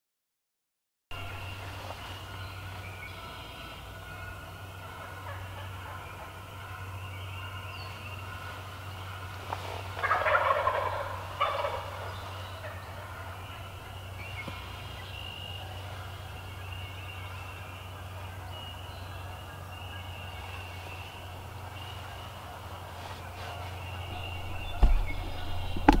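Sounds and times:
steady low hum: 1.1 - 26.0
turkey gobbling: 3.2 - 6.8, 8.3 - 14.0, 21.1 - 26.0.

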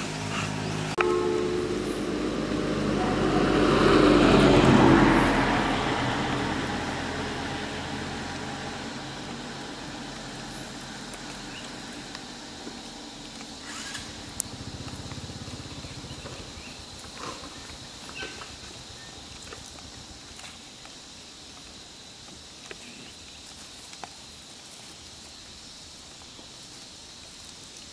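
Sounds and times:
vehicle engine: 0.0 - 21.7
small clicks and rustles: 17.2 - 27.9.

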